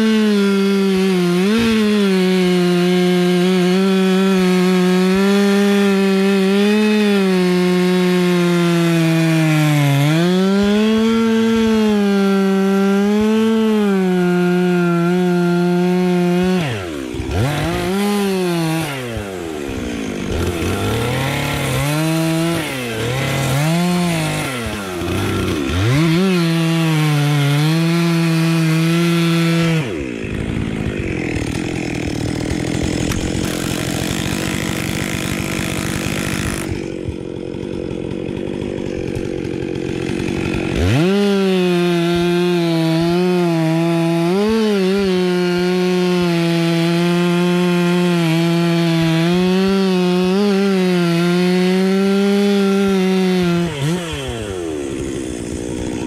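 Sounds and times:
chainsaw cutting wood: 0:00.0 - 0:56.0.

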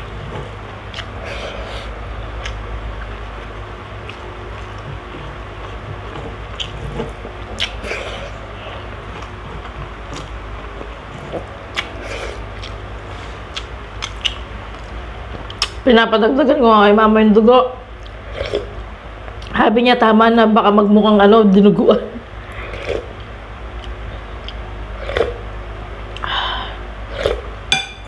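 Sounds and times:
chewing and wet mouth sounds: 0:00.0 - 0:15.8, 0:17.9 - 0:19.5, 0:22.4 - 0:25.5
mouth smacks and clicks: 0:13.5 - 0:14.4
low hum: 0:22.2 - 0:28.0.

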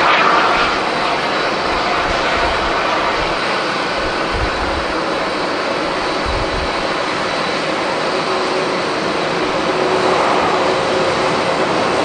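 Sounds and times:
jet engines roaring: 0:00.0 - 0:12.0
wind buffeting microphone: 0:00.0 - 0:12.0.

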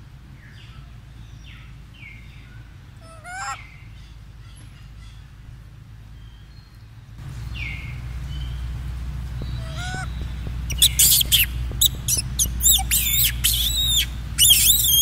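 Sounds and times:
low steady rumble: 0:00.0 - 0:15.0
baby monkey squealing: 0:09.6 - 0:15.0.

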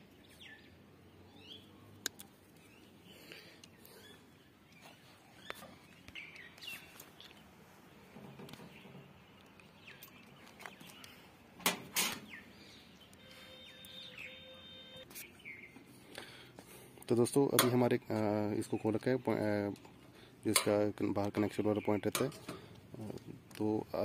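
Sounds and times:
bird chirps: 0:00.2 - 0:11.3, 0:12.2 - 0:16.4.

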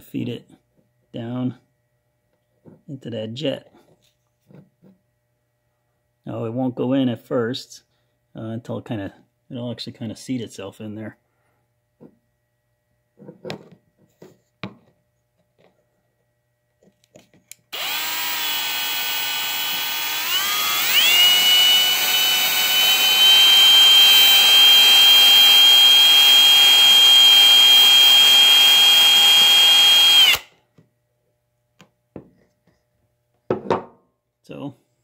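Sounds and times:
electric drill motor whine: 0:17.7 - 0:30.5.

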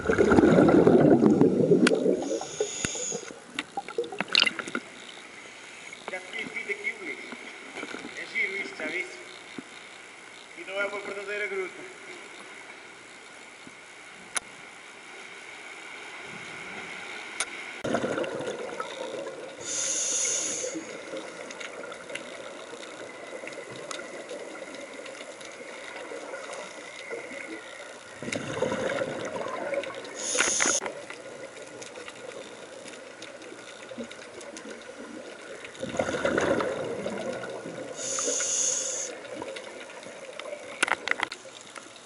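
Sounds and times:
exhaled bubbles rushing: 0:00.0 - 0:02.6, 0:17.8 - 0:19.6, 0:28.1 - 0:30.3, 0:35.1 - 0:38.0
regulator air hiss: 0:02.1 - 0:03.4, 0:19.6 - 0:21.1, 0:30.2 - 0:30.9, 0:37.9 - 0:39.2.

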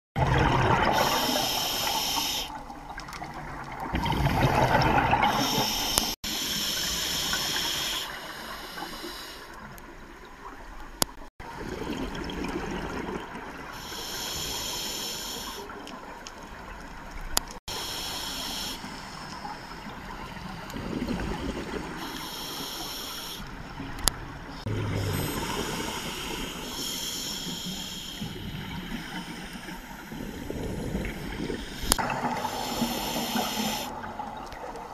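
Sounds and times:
diver breathing through regulator: 0:00.9 - 0:02.6, 0:04.6 - 0:09.6, 0:13.7 - 0:15.7, 0:17.7 - 0:19.8, 0:21.8 - 0:23.5, 0:24.6 - 0:34.0.

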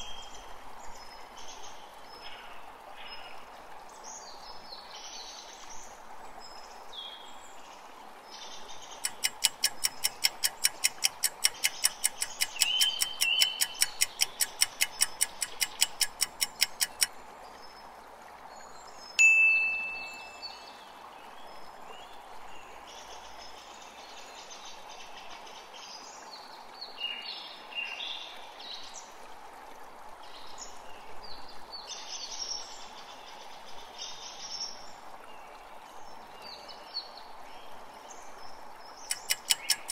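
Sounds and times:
running water: 0:00.0 - 0:39.9
birds chirping: 0:08.7 - 0:17.1, 0:19.2 - 0:20.8, 0:39.0 - 0:39.9
countdown timer ticking: 0:09.1 - 0:17.1
bell-like ding: 0:19.2 - 0:20.5.

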